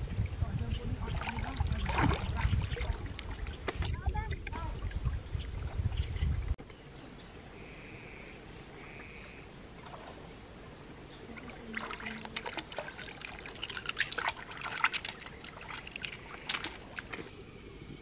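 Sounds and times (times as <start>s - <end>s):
hands splashing in river water: 1.1s - 3.9s, 11.3s - 17.3s
water trickling and dripping: 11.3s - 17.3s.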